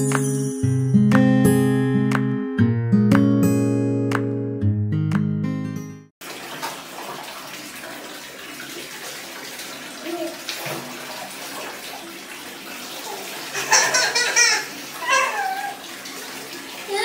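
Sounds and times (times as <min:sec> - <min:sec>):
light water splashing: 0:06.2 - 0:17.0
water running into bathtub: 0:06.2 - 0:17.0
young child's voice: 0:10.0 - 0:10.6.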